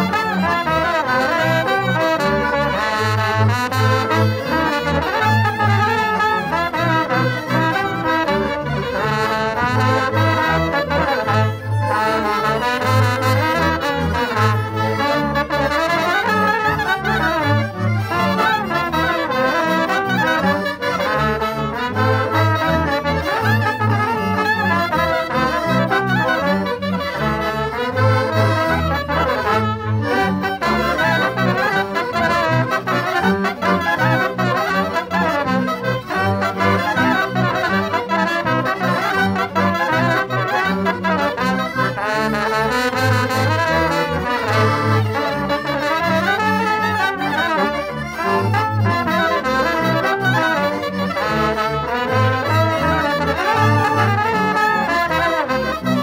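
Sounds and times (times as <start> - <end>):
accordion: 0.0 - 56.0
clarinet: 0.0 - 56.0
double bass low notes: 0.0 - 56.0
trumpet: 0.0 - 56.0
violin: 0.0 - 56.0.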